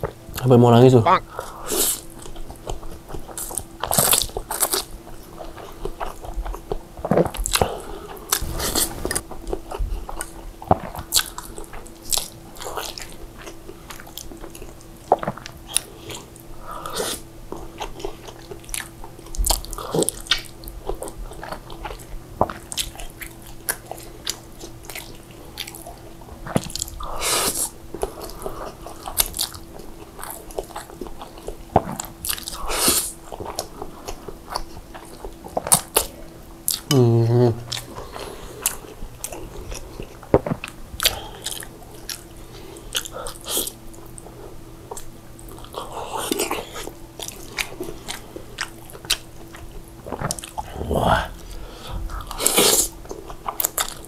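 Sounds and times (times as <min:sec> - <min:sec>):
person slurping noodles: 0:08.3 - 0:09.2
wet chewing mouth noises: 0:37.7 - 0:54.0.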